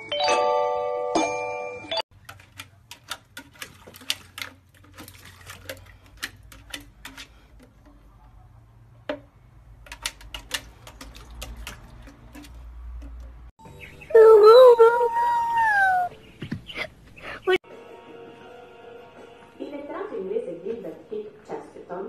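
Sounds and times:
puppy tapping a watering can: 2.2 - 8.2, 9.0 - 13.5.

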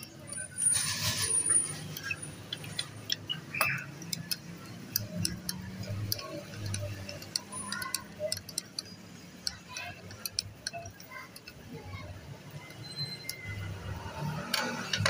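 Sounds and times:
screwdriver scrape on metal: 0.0 - 3.3
screwdriver metallic clicks: 1.9 - 11.6.

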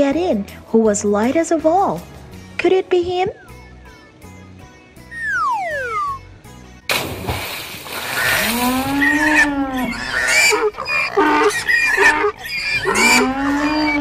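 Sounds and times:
big water splash: 6.9 - 9.0
farm animal long calls: 8.1 - 14.0
short honking squeals: 10.1 - 14.0.

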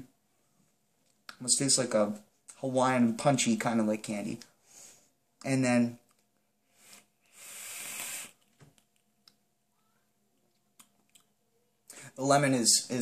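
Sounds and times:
breathy vape hiss: 6.7 - 8.4.

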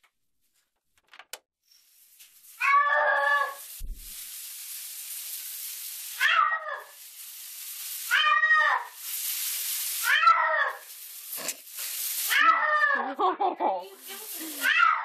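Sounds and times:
shower water running: 1.6 - 15.0
cat yowling: 2.6 - 3.6, 6.2 - 7.0, 8.1 - 9.0, 10.0 - 10.9, 12.3 - 13.0, 14.6 - 15.0.

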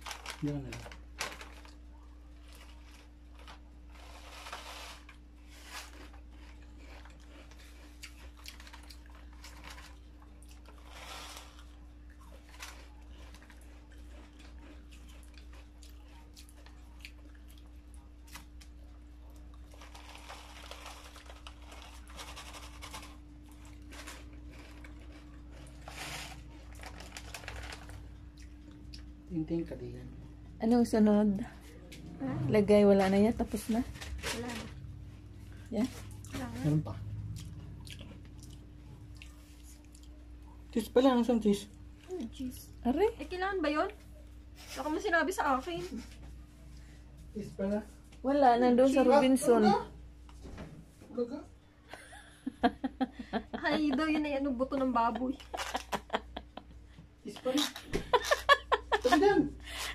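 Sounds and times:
foil crinkling: 0.0 - 14.6, 19.5 - 28.2, 33.0 - 34.9, 55.2 - 56.4
steady low hum: 0.0 - 59.9
spoon scraping foil tray: 3.4 - 7.6, 23.8 - 27.8.

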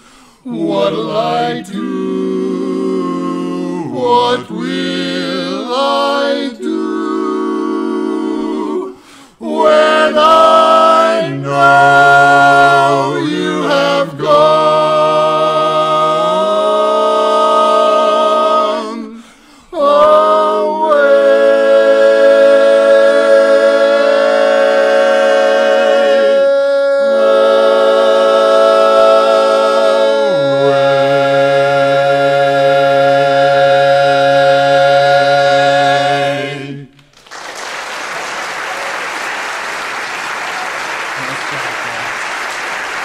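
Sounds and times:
men singing a cappella harmony: 0.0 - 37.0
audience applause: 37.1 - 43.0.

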